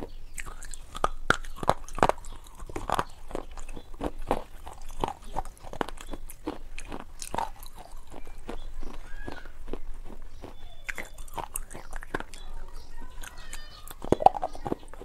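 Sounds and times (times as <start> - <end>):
wet chewing and lip smacks: 0.0 - 15.0.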